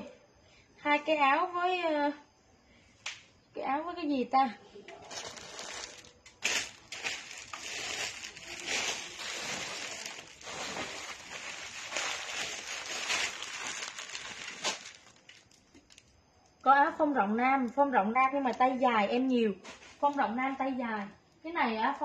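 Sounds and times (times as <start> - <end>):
plastic wrapping crinkling: 5.0 - 16.1.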